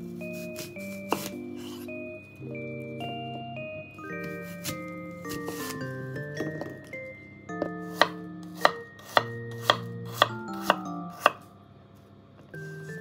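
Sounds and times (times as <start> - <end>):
knife chopping on wooden board: 0.6 - 1.8, 7.7 - 11.4.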